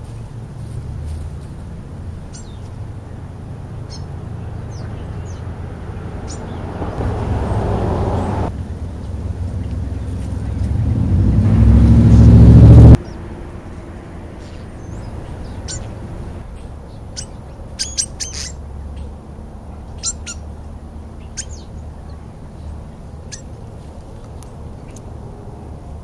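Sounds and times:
vehicle engine: 0:00.0 - 0:26.0
starlings calling: 0:02.3 - 0:03.2, 0:03.8 - 0:10.7, 0:14.4 - 0:19.2, 0:19.8 - 0:20.6, 0:21.2 - 0:23.6.

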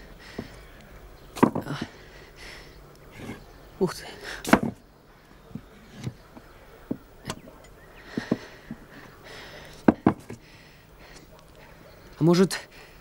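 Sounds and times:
wooden logs knocking together: 0:01.3 - 0:02.0, 0:04.4 - 0:04.8, 0:08.1 - 0:08.9, 0:09.7 - 0:10.5.

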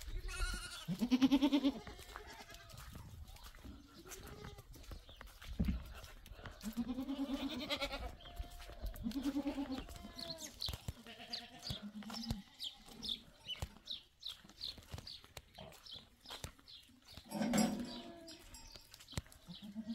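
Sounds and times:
goats bleating: 0:00.1 - 0:03.0, 0:03.9 - 0:04.9, 0:06.5 - 0:13.7, 0:19.4 - 0:19.9.

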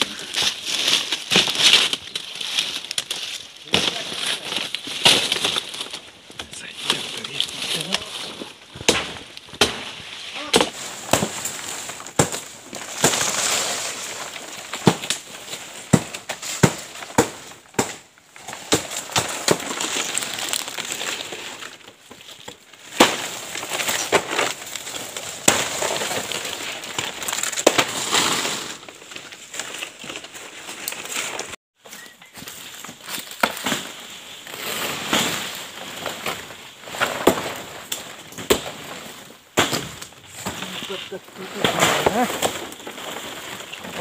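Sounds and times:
stiff leaves rustling: 0:00.0 - 0:44.0
machete chops: 0:08.9 - 0:11.5, 0:15.9 - 0:18.0.

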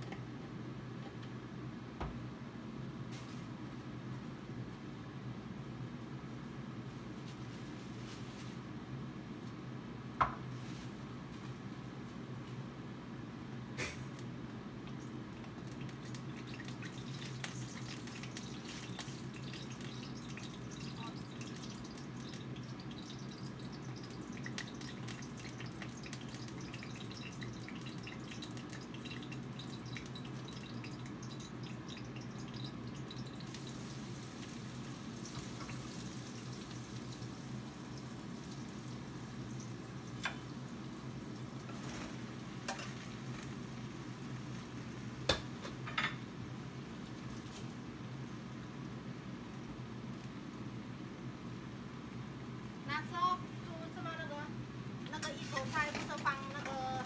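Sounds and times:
light ticks and drips: 0:14.1 - 0:45.8.

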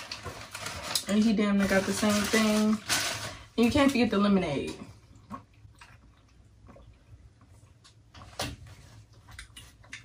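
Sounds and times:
paper food wrappers rustling: 0:00.0 - 0:04.2.

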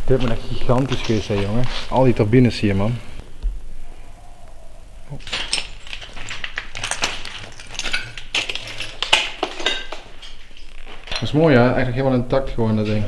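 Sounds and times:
small hard objects clinking: 0:05.2 - 0:11.4.

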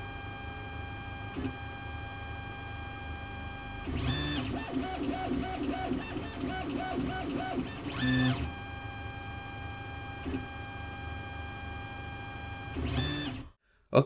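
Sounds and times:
stepper motors whining: 0:03.9 - 0:10.5, 0:12.6 - 0:13.5.

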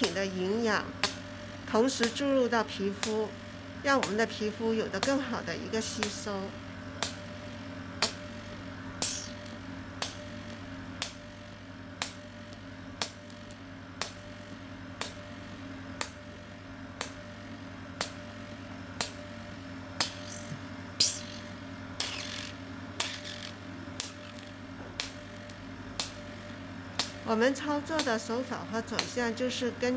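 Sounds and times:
machine hum: 0:00.0 - 0:29.9
sharp machine clicks: 0:01.8 - 0:03.3, 0:03.9 - 0:06.4, 0:08.0 - 0:08.2, 0:20.0 - 0:26.3, 0:26.9 - 0:29.5.

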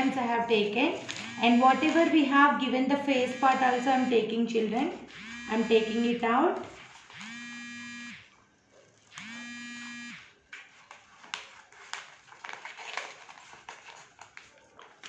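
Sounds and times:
steady electric buzzes: 0:01.1 - 0:08.3, 0:09.1 - 0:10.4.

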